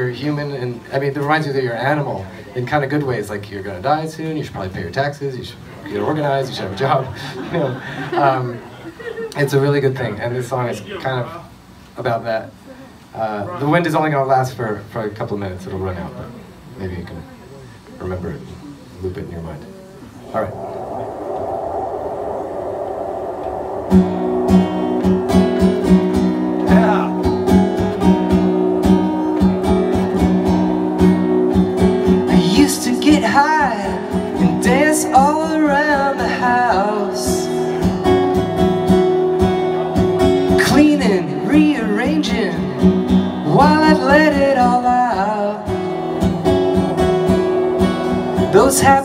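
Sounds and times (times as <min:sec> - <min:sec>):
steady background noise: 0:00.0 - 0:49.0
acoustic guitar strumming chords: 0:25.1 - 0:35.7, 0:37.7 - 0:49.0
man singing: 0:32.3 - 0:37.5, 0:40.5 - 0:42.8, 0:43.4 - 0:45.8, 0:48.5 - 0:49.0.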